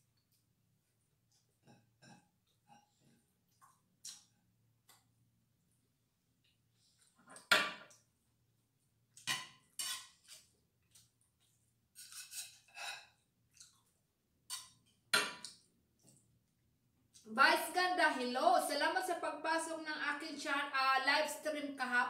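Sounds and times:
metal spoon scraping pan and plate: 9.2 - 10.5, 12.0 - 13.2.

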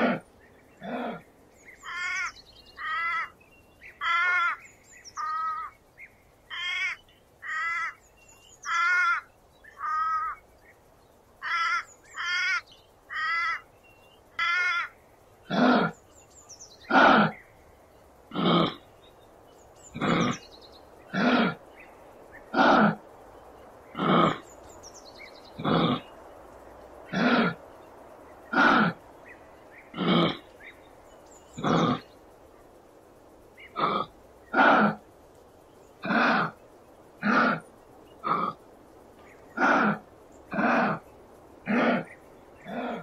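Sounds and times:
kangaroo calling coarsely: 0.0 - 1.2, 15.5 - 16.0, 16.9 - 17.4, 18.3 - 18.8, 19.9 - 20.4, 21.1 - 21.6, 22.5 - 23.0, 23.9 - 24.5, 25.6 - 26.1, 27.1 - 27.6, 28.5 - 29.0, 29.9 - 30.5, 31.6 - 32.0, 33.6 - 35.0, 36.0 - 36.6, 37.2 - 37.6, 38.2 - 38.6, 39.6 - 41.0, 41.6 - 43.0
kangaroo raspy calls: 0.0 - 4.6, 5.2 - 5.7, 6.5 - 8.0, 8.6 - 10.4, 11.4 - 13.6, 14.4 - 16.0, 16.8 - 17.4, 18.3 - 18.9, 19.9 - 20.5, 21.1 - 21.7, 22.4 - 23.1, 23.9 - 24.6, 25.5 - 26.2, 27.1 - 27.7, 28.4 - 29.1, 29.7 - 30.8, 31.5 - 32.2, 33.6 - 35.1, 36.0 - 36.6, 37.2 - 38.7, 39.5 - 41.0, 41.6 - 43.0.

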